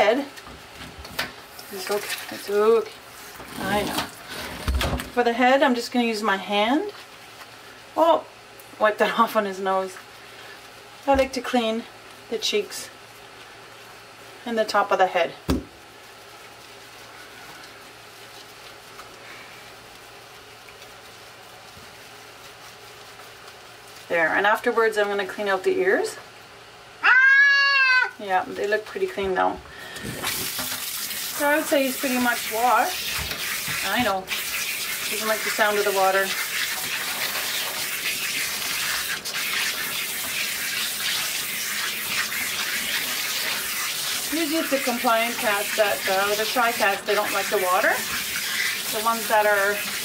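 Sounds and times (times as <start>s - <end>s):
water spraying onto tub floor: 0.0s - 26.0s, 28.6s - 50.0s.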